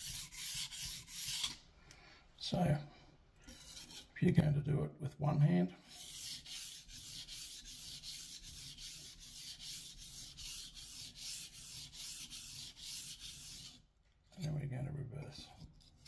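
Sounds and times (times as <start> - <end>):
knife blade scraping on whetstone: 0.0 - 1.6, 3.5 - 4.1.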